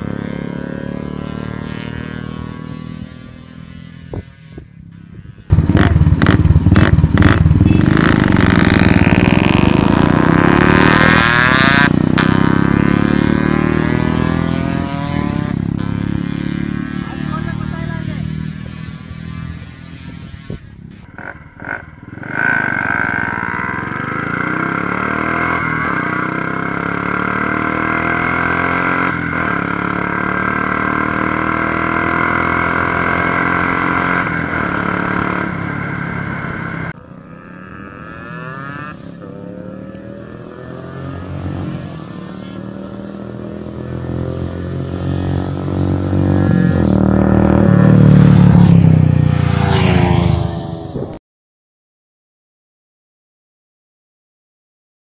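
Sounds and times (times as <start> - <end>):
motorcycle engine running: 0.0 - 43.8
motorcycle approaching: 0.0 - 51.2.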